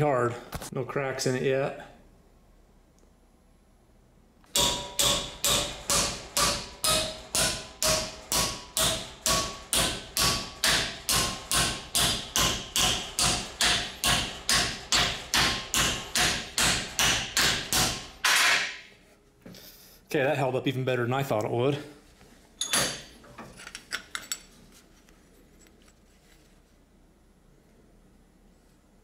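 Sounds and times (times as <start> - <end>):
hammer striking metal: 4.5 - 18.9.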